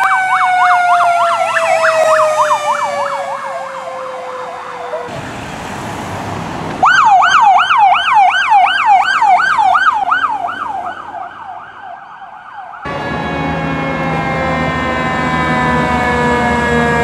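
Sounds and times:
siren on fast yelp: 0.0 - 5.2, 6.8 - 17.0
fire truck siren sliding down: 0.0 - 17.0.

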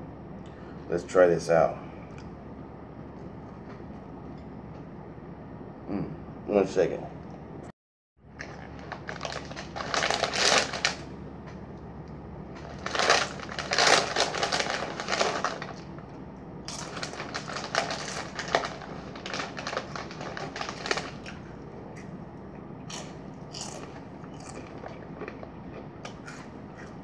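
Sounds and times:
snack bags rustling and crackling: 8.4 - 11.1, 12.5 - 16.0, 16.7 - 21.6.

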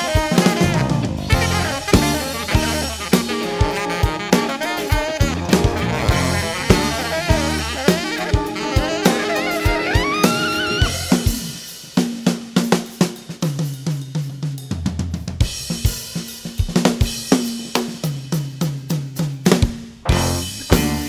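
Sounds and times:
tenor saxophone phrase: 0.0 - 11.3
cymbals: 0.0 - 21.0
drum kit solo: 0.0 - 21.0.

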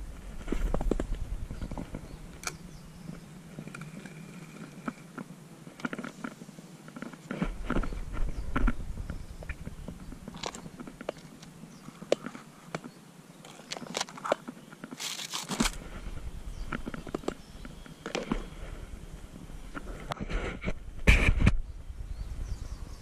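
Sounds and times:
rustling: 0.0 - 21.5.

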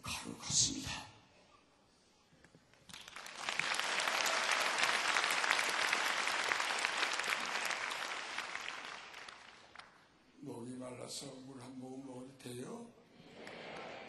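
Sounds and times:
large audience applauding: 2.9 - 10.0, 13.3 - 14.0.

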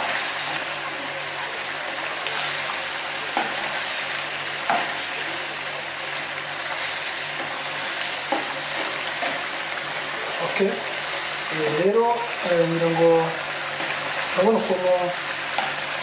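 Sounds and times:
meatballs sizzling in a pan: 0.0 - 16.0.

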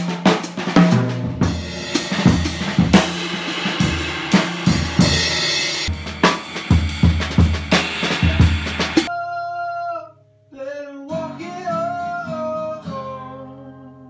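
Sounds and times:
drum hits: 0.0 - 9.1
cymbals crashing: 1.5 - 9.1.

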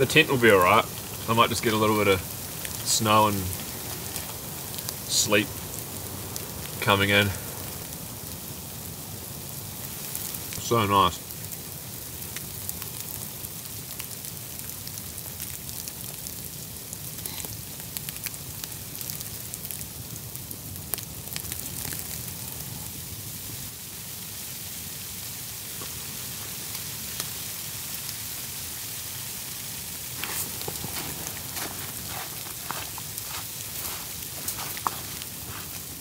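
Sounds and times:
sleet pattering on nylon fabric: 30.1 - 36.0.

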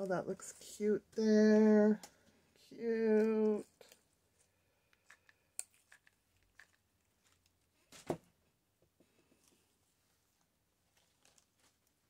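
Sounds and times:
paper and fabric rustling: 9.4 - 12.0.

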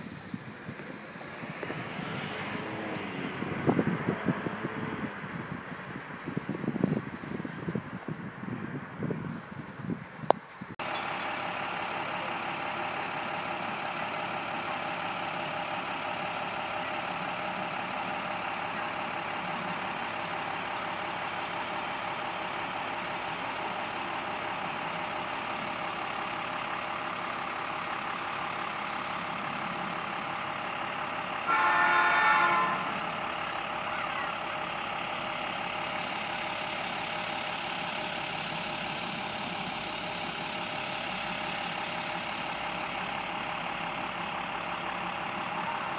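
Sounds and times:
locomotive horn blast: 31.4 - 33.1.

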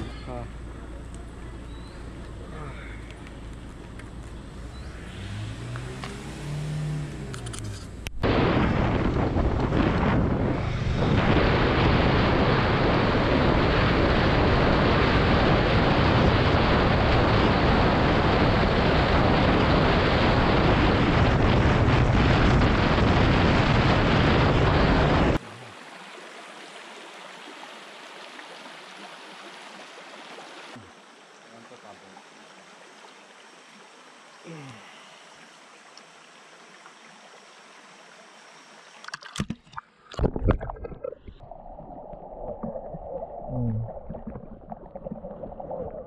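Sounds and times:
wind rushing over microphone: 8.1 - 25.4
shallow stream trickling: 25.4 - 46.0.

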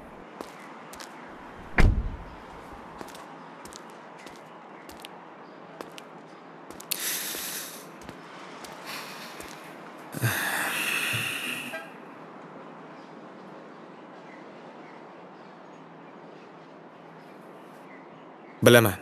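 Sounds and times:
person sighing: 10.2 - 11.8.

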